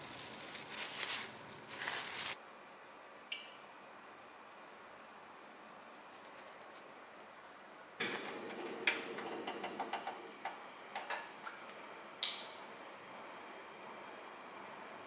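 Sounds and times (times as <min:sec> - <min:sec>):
igniter clicks: 0:12.2 - 0:12.6.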